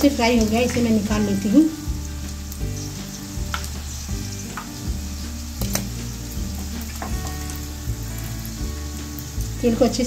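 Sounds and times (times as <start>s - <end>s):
hot oil sizzling: 0.0s - 10.0s
tongs clicking against pan: 3.5s - 3.8s, 5.6s - 6.0s.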